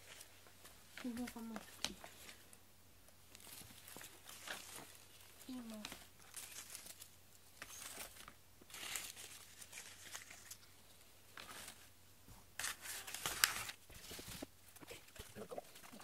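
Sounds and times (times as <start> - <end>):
paper wrapping crinkling: 3.3 - 11.9, 12.6 - 16.0.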